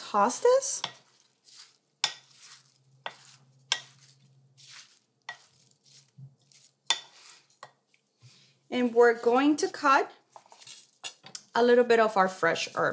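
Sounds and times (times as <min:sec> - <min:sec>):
soft wet stirring: 0:00.5 - 0:11.6.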